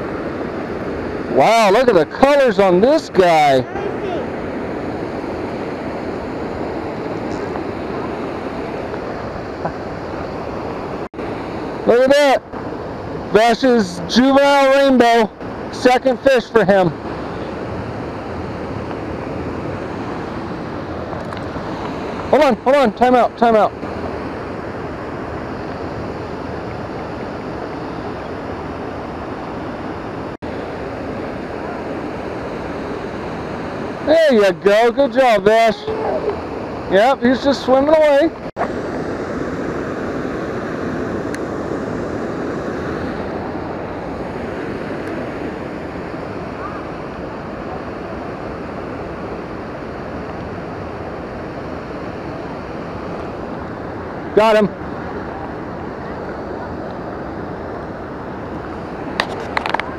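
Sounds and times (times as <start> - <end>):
river flowing through rapids: 0.0 - 22.4.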